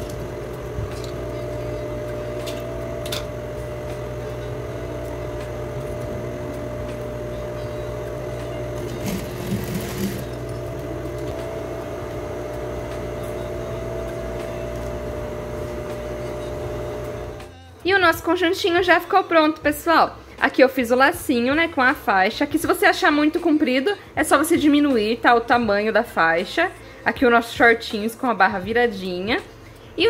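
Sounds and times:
electric sewing machine running: 0.0 - 17.5.

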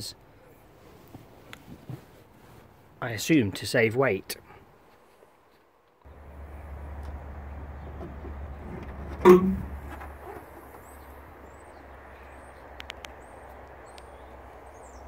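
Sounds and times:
car bonnet metallic clunk: 7.8 - 10.8
faint clicks: 12.7 - 14.2.

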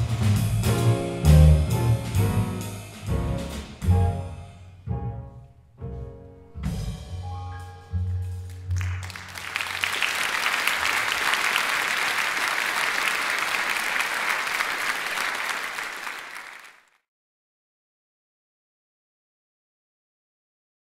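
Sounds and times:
double bass notes: 0.0 - 9.1
piano notes: 0.0 - 9.4
audience applause: 8.5 - 17.0.

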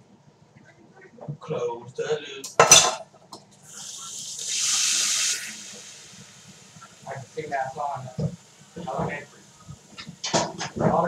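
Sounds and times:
pan sizzling: 2.6 - 11.0.

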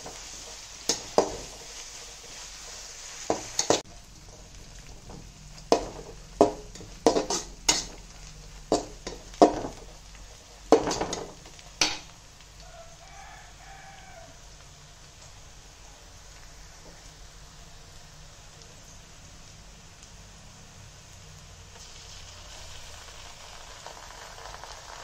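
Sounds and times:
onions sizzling in oil: 0.0 - 25.0
spatula scraping metal pan: 5.6 - 9.8.

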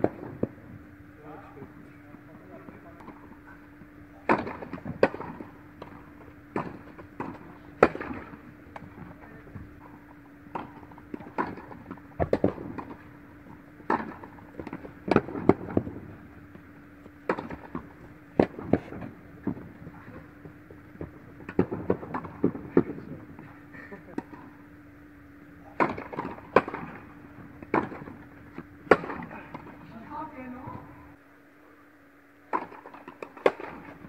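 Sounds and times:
steady low hum: 0.0 - 34.0
tennis ball pops on rackets: 17.0 - 19.6, 32.5 - 34.0.

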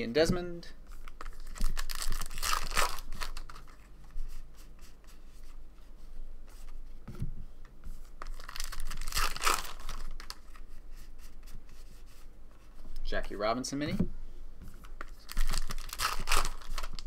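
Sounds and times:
foil wrapper tearing and crinkling: 1.0 - 3.8, 8.3 - 10.6, 15.1 - 17.0.

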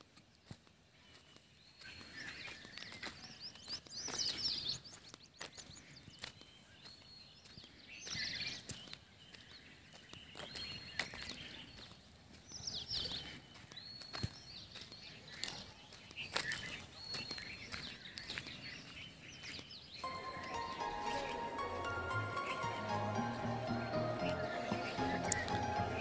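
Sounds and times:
songbird singing: 0.9 - 26.0.

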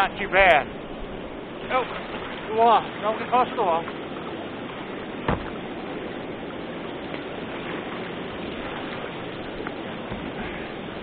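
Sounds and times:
short thump: 5.2 - 5.6.

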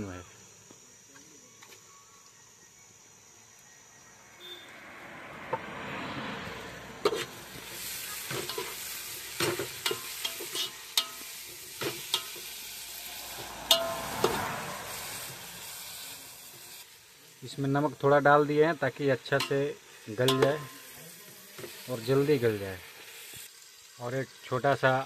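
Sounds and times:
onions sizzling in oil: 6.5 - 25.0
metal spoon scraping and clinking pot: 7.0 - 7.3, 8.3 - 8.8, 9.4 - 12.5, 20.2 - 20.8.

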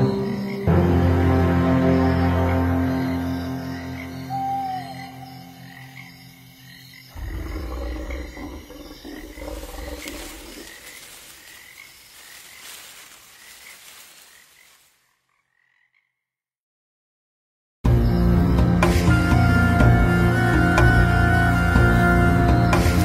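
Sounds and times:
frogs croaking: 0.0 - 16.4.

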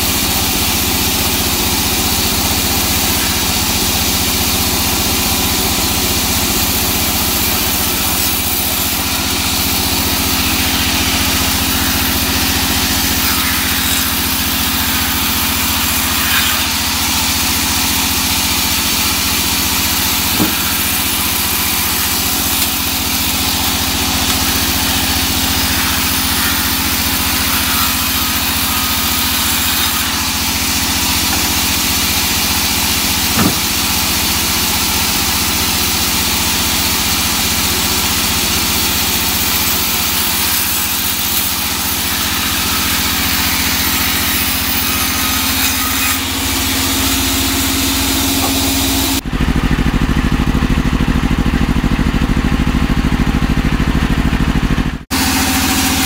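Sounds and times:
band saw ripping a log: 0.0 - 49.2.

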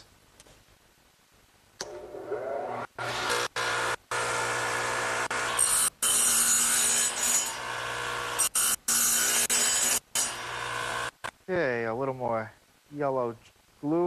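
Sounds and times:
table saw humming: 2.6 - 11.1
saw cutting wood: 3.0 - 11.2.

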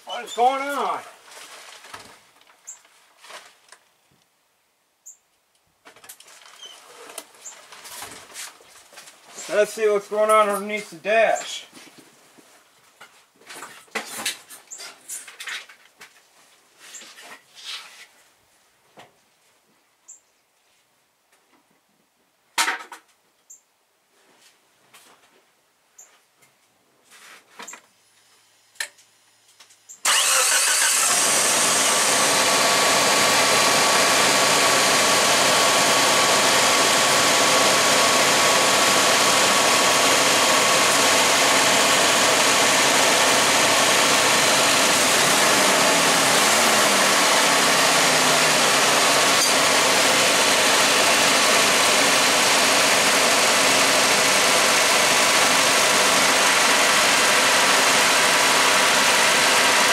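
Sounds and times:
car engine starting and idling: 30.0 - 59.9.

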